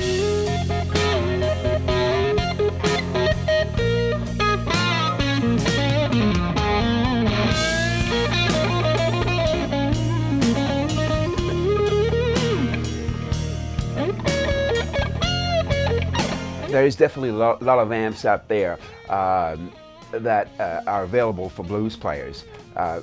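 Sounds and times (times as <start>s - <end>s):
steady drum beat: 0.0s - 16.8s
blues electric guitar: 0.0s - 23.0s.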